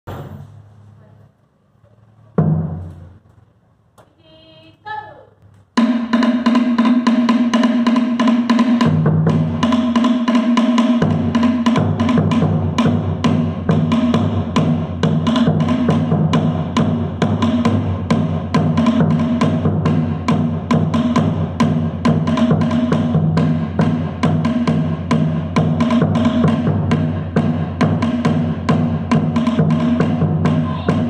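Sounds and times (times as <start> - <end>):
person shouting a call: 30.6 - 31.0.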